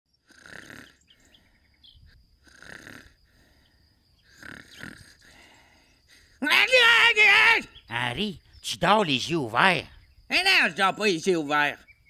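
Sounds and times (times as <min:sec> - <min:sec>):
cartoon character snoring: 0:00.2 - 0:01.0, 0:02.4 - 0:03.2, 0:04.3 - 0:05.4.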